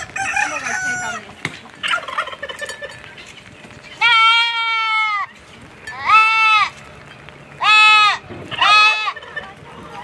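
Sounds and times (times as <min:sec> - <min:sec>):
goat bleating: 0:04.0 - 0:05.3, 0:05.9 - 0:06.8, 0:07.6 - 0:09.3.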